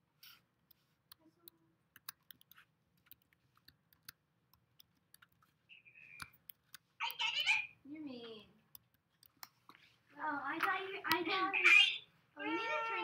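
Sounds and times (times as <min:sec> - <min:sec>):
computer keys clicking: 0:00.2 - 0:07.5, 0:08.6 - 0:09.8.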